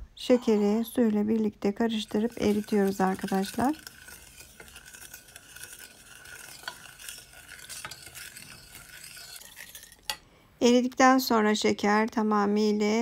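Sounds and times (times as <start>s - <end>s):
gritty swishing of sugar: 1.8s - 10.1s.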